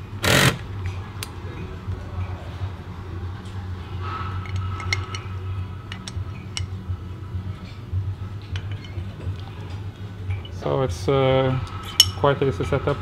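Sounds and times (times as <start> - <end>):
steady low hum: 0.0 - 13.0
small metal parts clinking: 5.9 - 6.7, 8.6 - 9.0.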